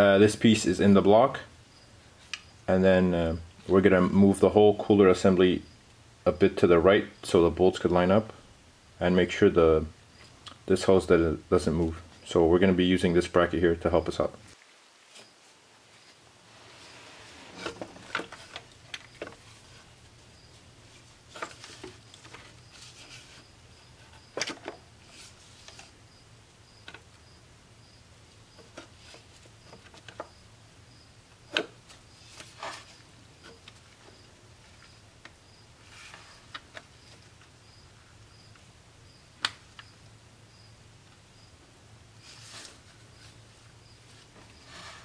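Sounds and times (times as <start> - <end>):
low steady hum: 15.7 - 24.2.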